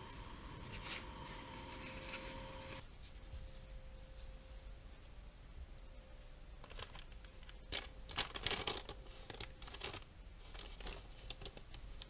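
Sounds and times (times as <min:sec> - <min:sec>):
paper wrapping crinkling and tearing: 0:00.0 - 0:02.8, 0:06.6 - 0:12.0.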